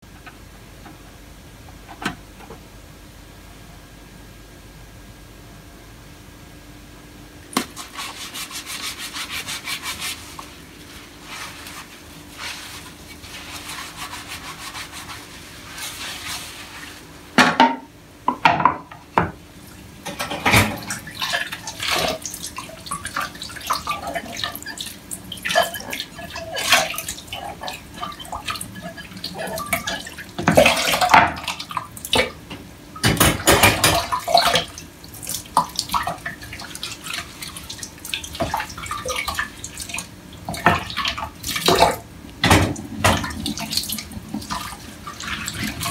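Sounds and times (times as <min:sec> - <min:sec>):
tap water splashing in sink: 0:07.5 - 0:07.9, 0:20.0 - 0:45.9
dishes knocking: 0:17.4 - 0:19.4.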